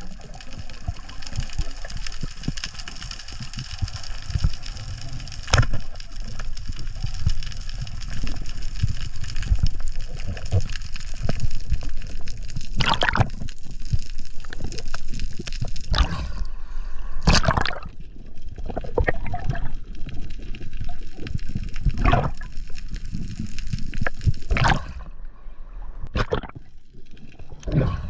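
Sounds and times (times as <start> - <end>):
water gurgling underwater: 0.0 - 16.5, 17.2 - 25.2, 26.0 - 28.0
loud rushes of bubbles: 12.7 - 13.5, 15.9 - 16.5, 17.2 - 18.0, 21.8 - 22.5, 24.4 - 25.2, 26.1 - 26.7.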